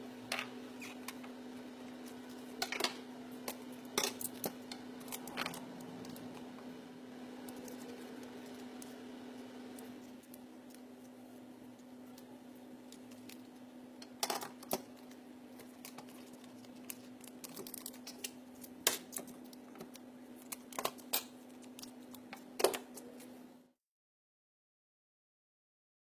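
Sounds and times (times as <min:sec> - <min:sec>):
steady low hum: 0:00.0 - 0:23.8
ribbon and paper rustling: 0:07.4 - 0:09.0, 0:14.6 - 0:23.4.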